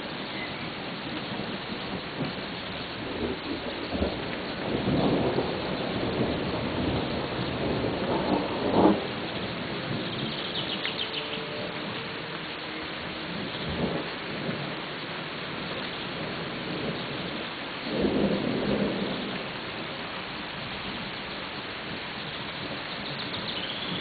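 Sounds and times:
rolling thunder: 0:00.0 - 0:12.0, 0:13.3 - 0:14.8, 0:15.5 - 0:21.2
steady rain: 0:00.0 - 0:24.0
sharp thunder clap: 0:03.0 - 0:09.1, 0:17.9 - 0:19.4.

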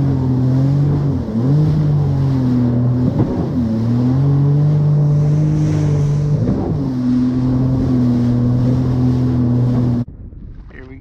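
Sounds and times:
jet ski engine running: 0:00.0 - 0:10.1
water rushing: 0:00.0 - 0:10.1.

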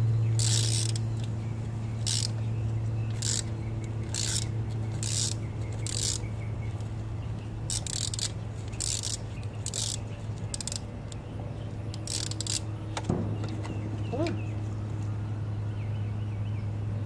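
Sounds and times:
steady low hum: 0:00.0 - 0:17.0
ratchet wrench clicking: 0:00.4 - 0:01.3, 0:02.0 - 0:02.4, 0:03.1 - 0:06.3, 0:07.7 - 0:11.2, 0:11.9 - 0:12.7.

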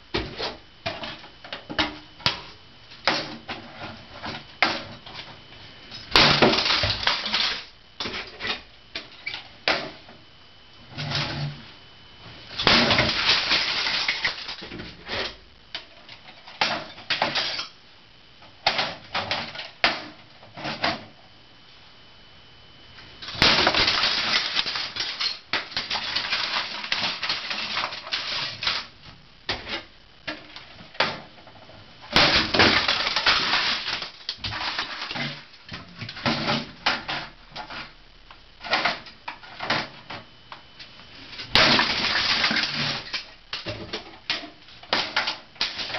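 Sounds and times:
hammer crushing hard plastic: 0:06.1 - 0:10.0, 0:12.6 - 0:15.4, 0:23.2 - 0:28.9, 0:32.1 - 0:37.9, 0:41.4 - 0:45.9.

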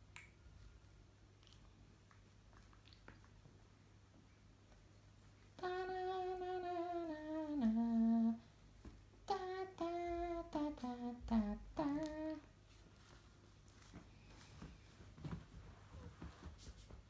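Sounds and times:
person humming: 0:05.6 - 0:08.5, 0:09.2 - 0:12.5.

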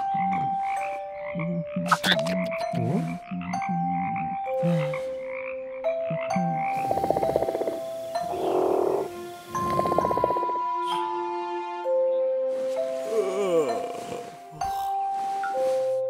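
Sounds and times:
rattling frog croak: 0:00.0 - 0:10.7
frogs croaking: 0:00.0 - 0:11.1.

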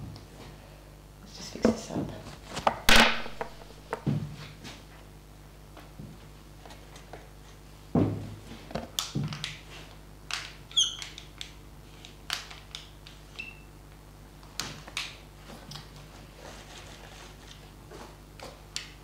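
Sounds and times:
high marker squeak: 0:10.7 - 0:11.0.

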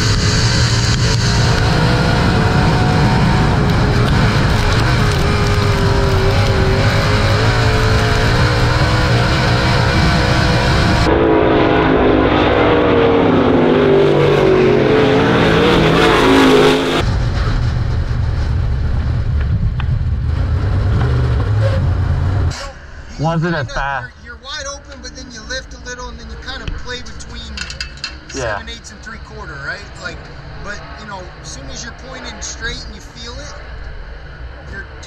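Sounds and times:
race car engine at speed: 0:00.0 - 0:22.6, 0:28.1 - 0:35.0
race car passing on track: 0:00.1 - 0:17.5.

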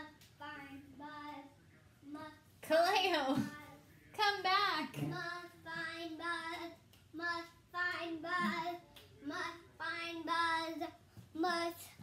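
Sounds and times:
child singing: 0:00.0 - 0:02.4, 0:05.0 - 0:12.0.

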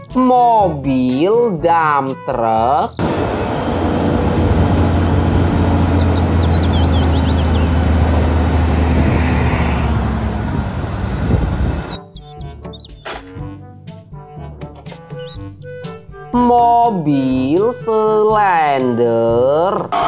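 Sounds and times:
diesel truck engine running: 0:03.0 - 0:12.0.

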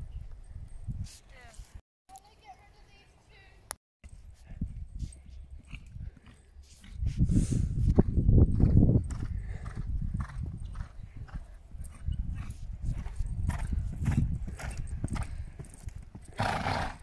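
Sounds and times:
hooves thudding on sand: 0:04.1 - 0:17.0.

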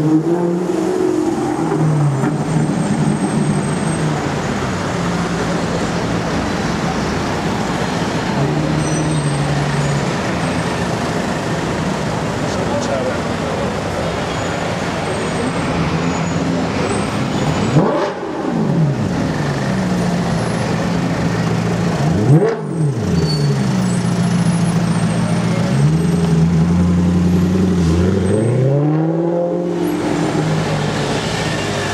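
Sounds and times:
engine revving: 0:17.6 - 0:19.8, 0:21.9 - 0:23.2.

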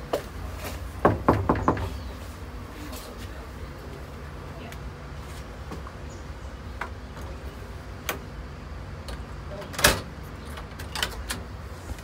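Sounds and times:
knocks at a door: 0:01.0 - 0:01.9.

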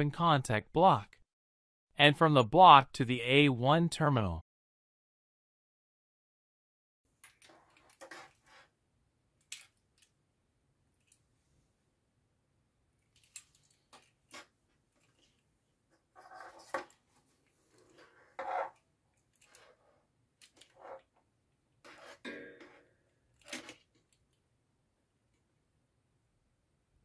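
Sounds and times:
wires rustling: 0:13.0 - 0:24.4.

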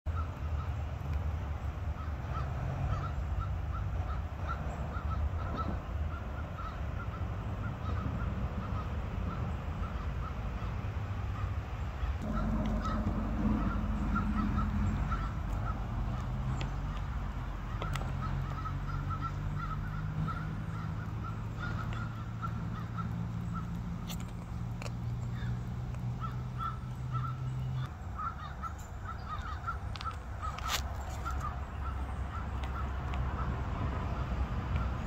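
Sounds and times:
low outdoor rumble: 0:00.1 - 0:35.0
low hum: 0:12.0 - 0:29.2.

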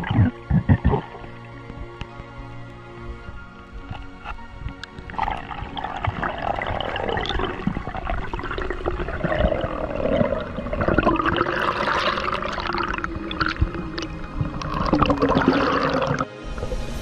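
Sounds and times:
underwater water rushing: 0:00.0 - 0:17.0.

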